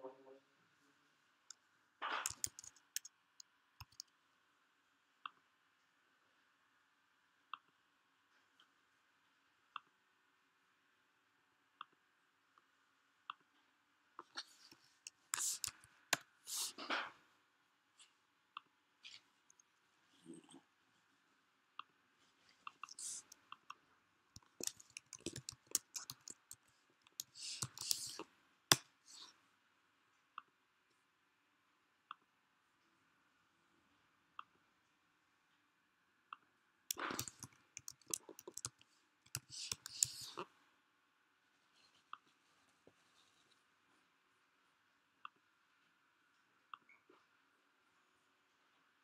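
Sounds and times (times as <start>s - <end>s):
keyboard typing: 2.2s - 3.1s, 3.8s - 4.1s, 15.1s - 16.2s, 22.7s - 23.4s, 24.4s - 28.2s, 36.9s - 40.4s
computer mouse clicking: 2.2s - 4.2s, 14.4s - 16.3s, 22.7s - 23.7s, 24.4s - 28.8s, 36.9s - 40.4s.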